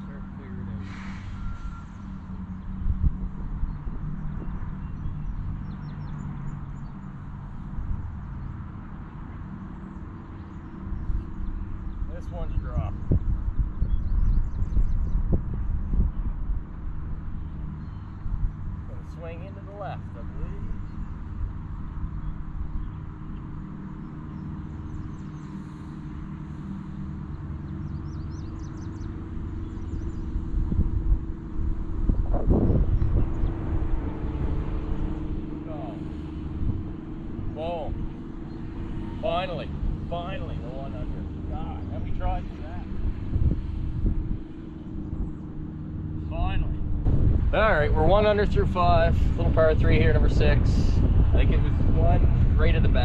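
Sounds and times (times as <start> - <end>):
low outdoor rumble: 0.0 - 53.0
wind buffeting microphone: 0.0 - 53.0
faint bird chirps: 0.1 - 2.8.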